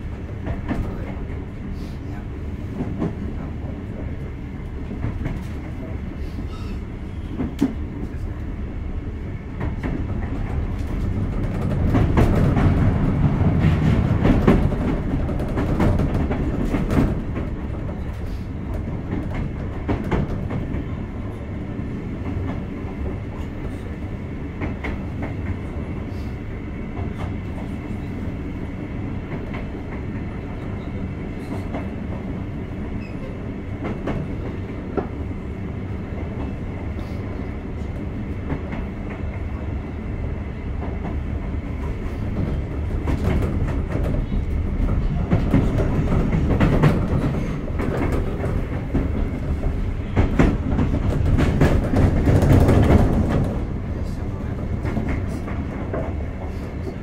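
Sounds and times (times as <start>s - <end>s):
train wheels rumbling on rail: 0.0s - 57.0s
rail-joint clicks: 2.7s - 8.4s, 29.3s - 35.2s, 41.8s - 57.0s.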